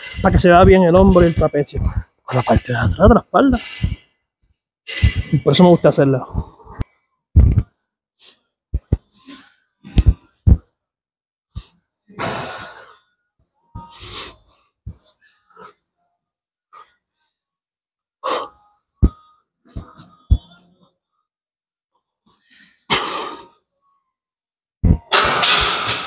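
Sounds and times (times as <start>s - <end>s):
dull low thumps: 1.8s - 4.0s, 7.4s - 7.7s, 10.0s - 10.6s, 24.8s - 25.1s.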